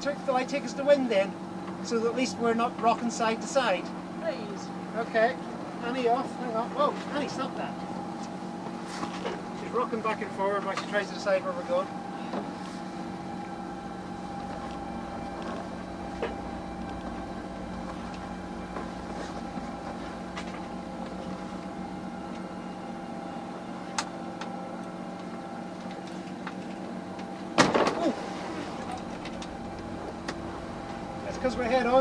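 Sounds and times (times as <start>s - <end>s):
diesel engine running: 0.0s - 32.0s
wave slapping hull: 10.5s - 22.4s, 27.6s - 32.0s.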